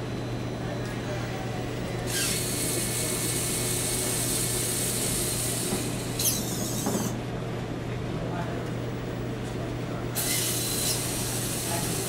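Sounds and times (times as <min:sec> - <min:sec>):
small electric motors whirring: 0:02.1 - 0:07.2, 0:10.2 - 0:12.0.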